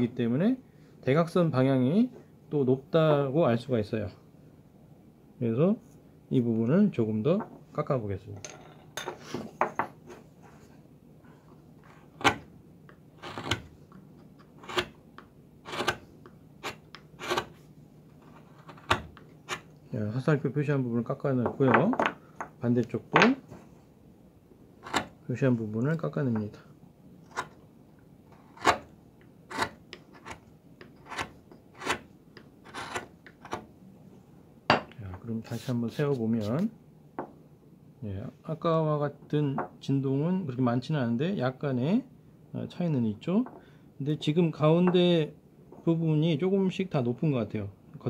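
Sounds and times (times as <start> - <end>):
chisel slicing wood: 12.2 - 12.5, 13.2 - 13.7, 14.6 - 15.0, 15.6 - 16.0, 16.6 - 17.6, 24.8 - 25.1, 28.4 - 28.9, 29.5 - 33.6.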